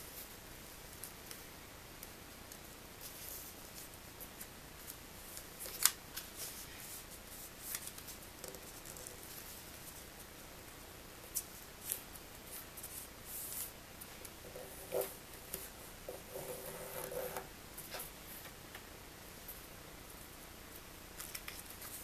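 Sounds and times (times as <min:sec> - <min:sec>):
paper rustling: 0:04.8 - 0:10.1.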